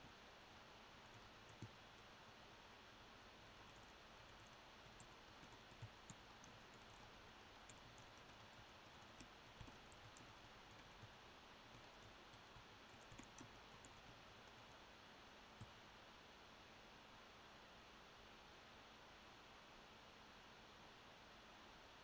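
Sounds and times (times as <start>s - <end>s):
faint steady hiss: 0.0s - 22.0s
computer keyboard clicks: 1.1s - 1.8s, 3.7s - 14.8s.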